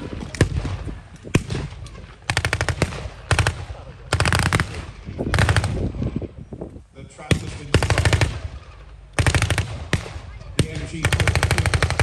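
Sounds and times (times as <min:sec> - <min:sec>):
machine gun fire: 0:07.3 - 0:08.6, 0:09.2 - 0:12.0.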